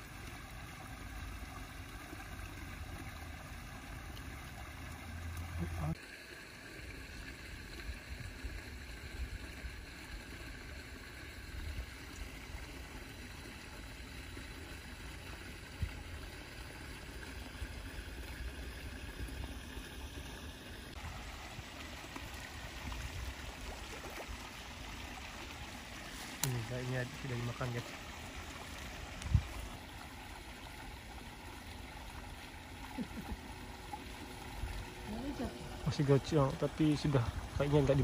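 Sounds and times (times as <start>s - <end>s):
wind rumble on microphone: 29.1s - 29.6s.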